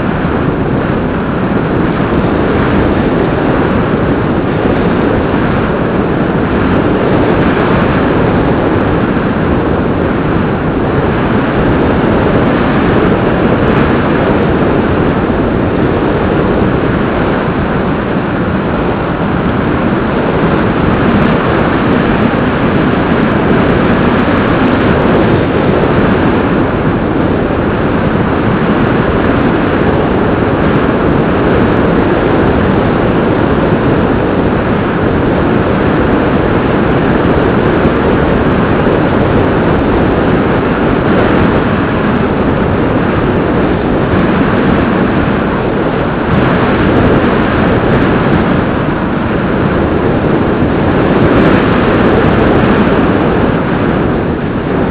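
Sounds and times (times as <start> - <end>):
airflow and propeller noise: 0.0 - 54.9.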